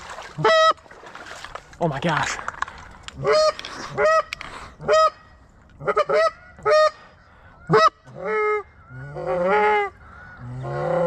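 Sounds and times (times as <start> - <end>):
goose honks: 5.8 - 11.0.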